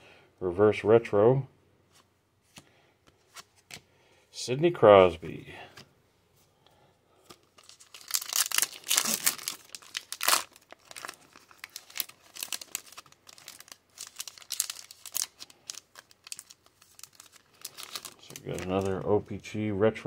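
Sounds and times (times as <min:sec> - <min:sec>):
foil wrapper crinkling: 0:07.3 - 0:19.4.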